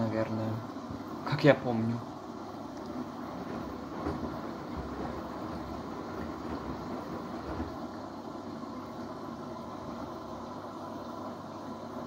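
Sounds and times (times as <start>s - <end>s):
washing machine drum rumbling: 2.9s - 8.1s
dull thumps in drum: 3.2s - 7.8s.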